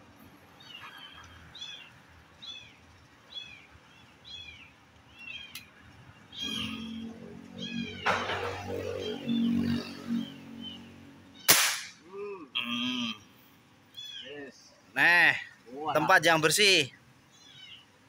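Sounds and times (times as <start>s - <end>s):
small animal calling: 6.3s - 8.0s
air rifle firing: 11.5s - 12.0s.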